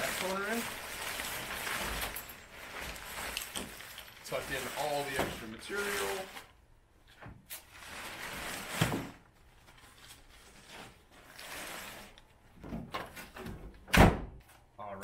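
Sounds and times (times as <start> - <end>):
tent canvas rustling: 0.0 - 6.3.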